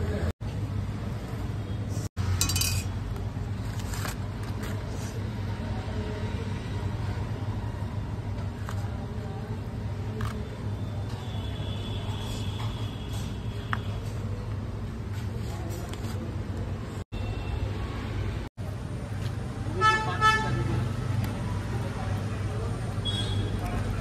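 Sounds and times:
metal spatula clinking on plate: 2.4s - 2.9s.

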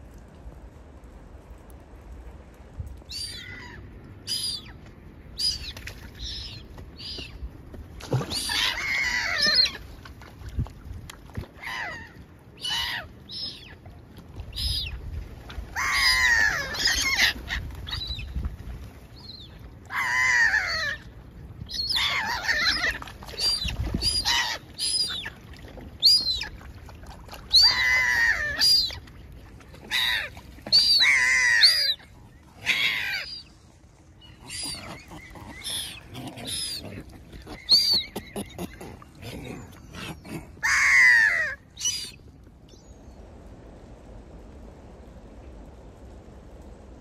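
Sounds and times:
birds calling: 34.2s - 42.2s.

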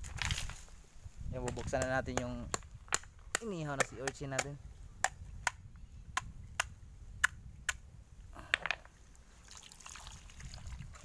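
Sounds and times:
shell crunching and crackling: 2.5s - 4.2s.

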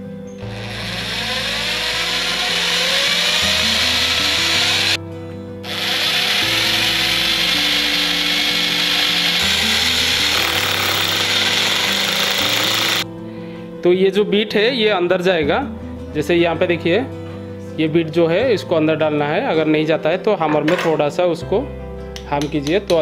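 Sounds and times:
rotary hammer drilling into masonry: 0.4s - 5.0s, 5.7s - 13.0s.

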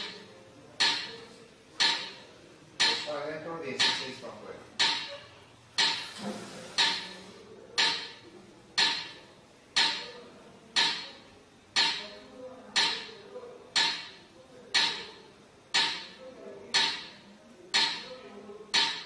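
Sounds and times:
metronome ticking: 0.8s - 1.2s, 1.8s - 2.2s, 2.8s - 3.2s, 3.8s - 4.2s, 4.8s - 6.0s, 6.8s - 7.2s, 7.8s - 8.2s, 8.8s - 9.2s, 9.8s - 10.2s, 10.8s - 12.2s, 12.8s - 13.2s, 13.8s - 15.1s, 15.7s - 19.0s.

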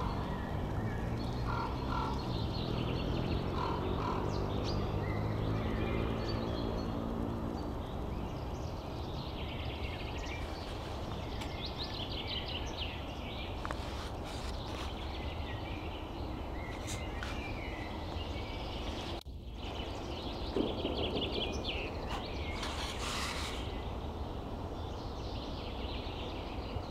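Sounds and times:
low background rumble: 0.0s - 13.6s
songbirds singing trilled phrases: 0.0s - 26.9s.

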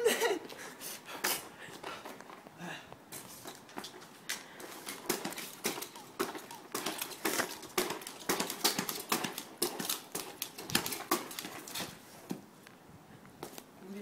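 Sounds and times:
rapid irregular tapping: 4.6s - 11.9s.

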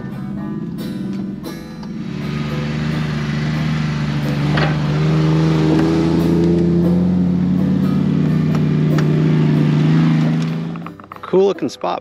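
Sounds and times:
small engine at low revs: 1.9s - 10.9s.

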